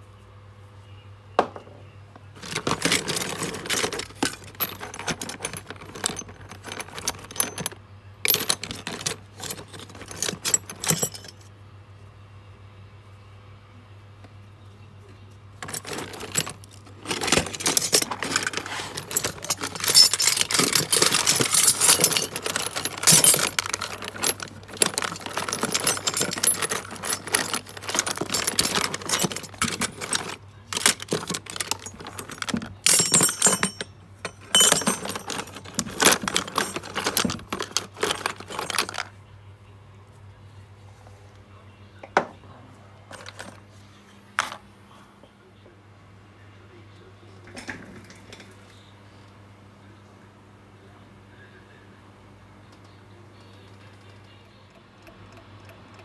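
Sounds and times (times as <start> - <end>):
metal fittings clinking in tub: 2.4 - 11.4, 15.6 - 39.1.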